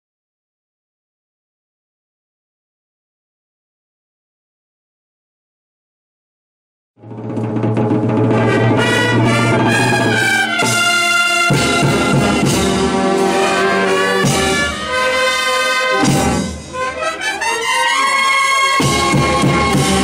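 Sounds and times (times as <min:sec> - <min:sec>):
drum or cymbal hits: 0:07.1 - 0:14.7, 0:16.0 - 0:16.8, 0:18.8 - 0:20.0
brass band playing chords: 0:07.2 - 0:20.0.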